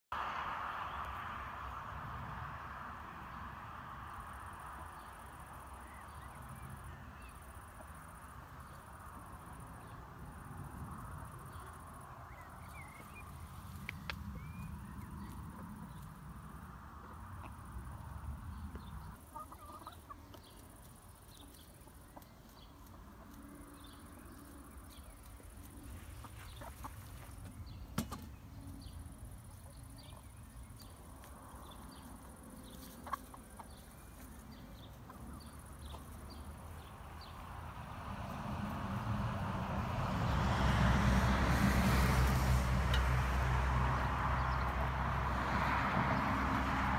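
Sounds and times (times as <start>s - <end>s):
hens clucking softly: 18.7s - 21.0s, 25.8s - 27.4s, 32.7s - 36.2s.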